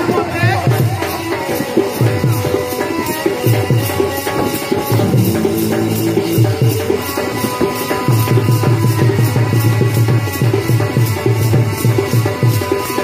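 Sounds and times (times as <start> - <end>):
jingling percussion: 0.0 - 13.0
hand drum strokes: 0.7 - 13.0
melody instrument tones: 4.8 - 8.7.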